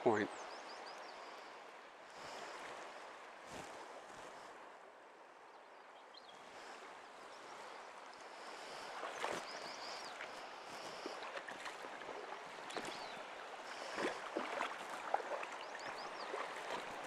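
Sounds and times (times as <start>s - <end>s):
faint bird chirps: 0.0s - 1.7s, 5.5s - 11.2s, 12.7s - 14.1s, 15.5s - 16.7s
creek flowing: 0.0s - 17.0s
knocks or splashes: 10.9s - 13.2s, 13.8s - 17.0s.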